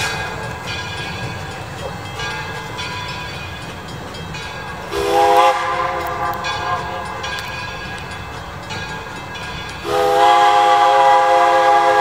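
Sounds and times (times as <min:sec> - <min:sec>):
train rumbling: 0:00.0 - 0:12.0
steam locomotive whistle: 0:04.9 - 0:07.4, 0:09.8 - 0:12.0.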